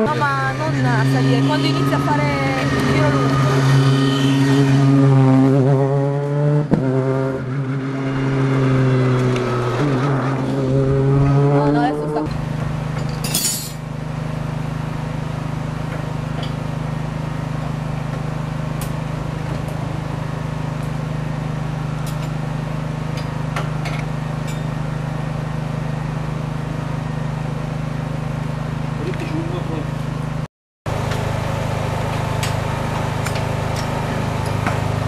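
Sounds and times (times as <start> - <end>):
low mechanical hum: 12.1 - 35.0.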